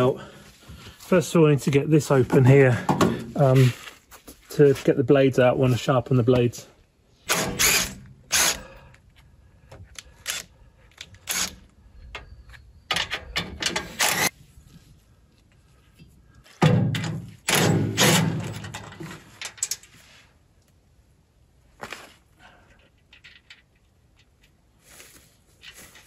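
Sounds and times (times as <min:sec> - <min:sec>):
cordless drill running: 0:07.3 - 0:08.6
metal clicks and clanks: 0:12.9 - 0:14.3, 0:16.6 - 0:19.9.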